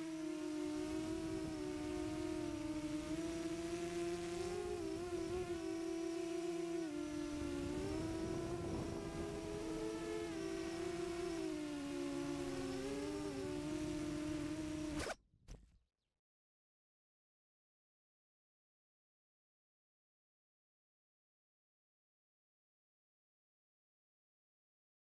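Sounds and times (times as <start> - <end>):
drone motors humming: 0.0 - 15.1.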